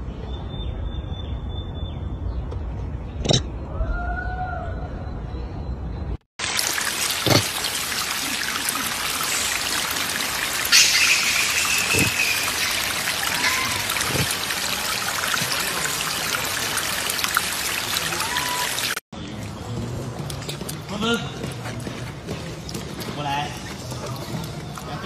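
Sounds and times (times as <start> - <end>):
water trickling over rock: 6.4 - 25.0
high-pitched calls: 10.6 - 14.6.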